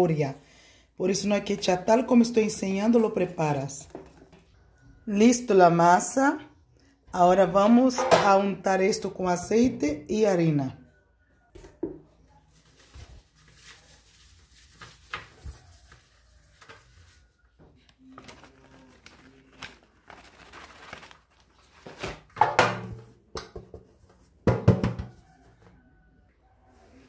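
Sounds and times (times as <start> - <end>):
metal tray clattering: 7.9 - 8.4.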